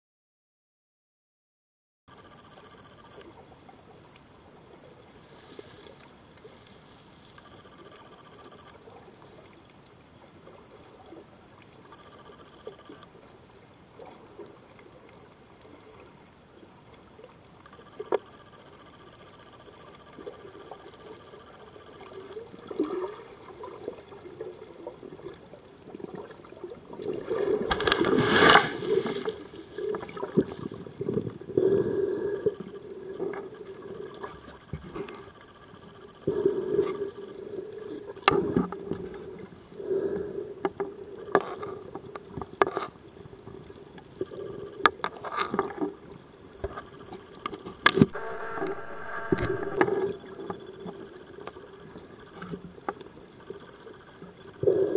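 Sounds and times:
muffled underwater gurgling: 48.0 - 51.2.

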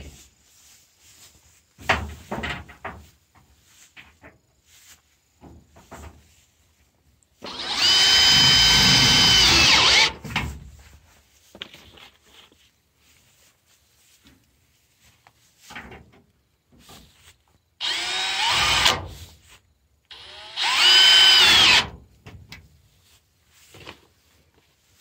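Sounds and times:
cordless drill driving screw into metal: 7.4 - 10.2, 17.8 - 19.1, 20.1 - 22.0.

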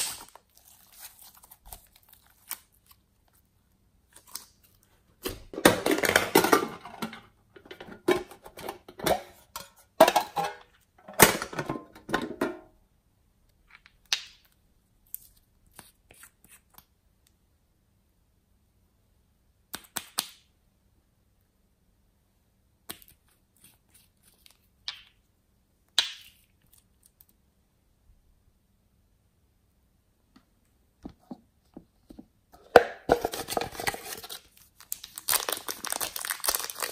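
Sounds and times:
slime crackling and popping: 34.8 - 36.9.

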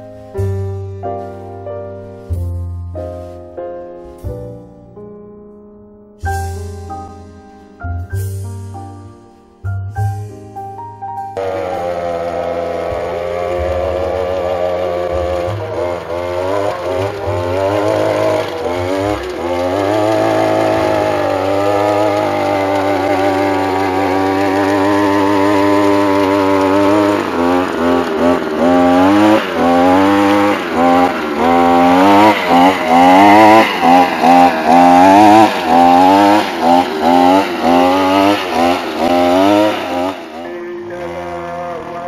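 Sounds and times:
tines biting into soil: 11.4 - 40.4
brush-cutter engine revving: 11.4 - 42.0.

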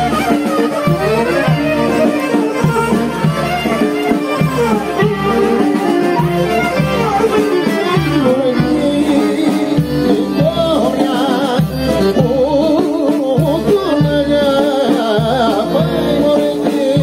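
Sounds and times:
accordion: 0.0 - 17.0
steady drum beat: 0.0 - 17.0
man singing: 4.5 - 17.0.

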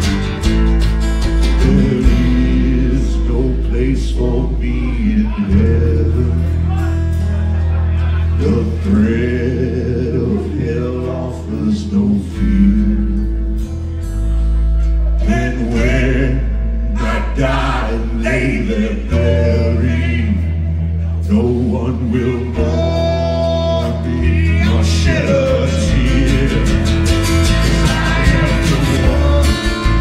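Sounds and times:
drums: 0.0 - 3.2, 24.2 - 30.0
electric guitar: 0.0 - 8.6, 18.8 - 30.0
bass guitar low notes: 0.0 - 30.0
strummed acoustic guitar: 0.0 - 30.0
man singing lead: 1.5 - 7.1, 8.0 - 13.6, 15.1 - 30.0.

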